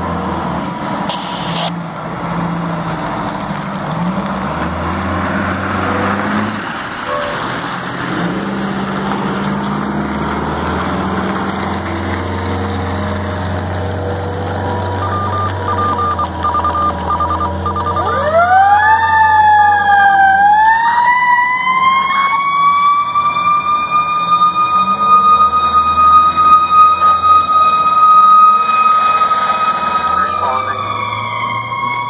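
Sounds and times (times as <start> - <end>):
fire truck engine running: 0.0 - 32.0
siren wailing: 1.1 - 1.8, 5.4 - 7.8, 14.8 - 32.0.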